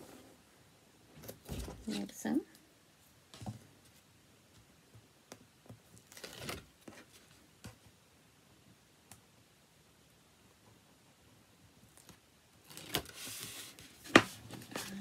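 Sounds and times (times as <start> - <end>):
paper rustling: 12.7 - 15.0.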